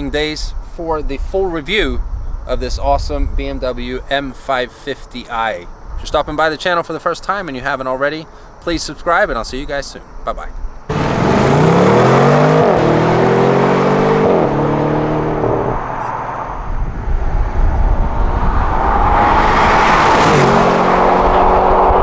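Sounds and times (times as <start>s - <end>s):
car engine accelerating: 10.9s - 22.0s.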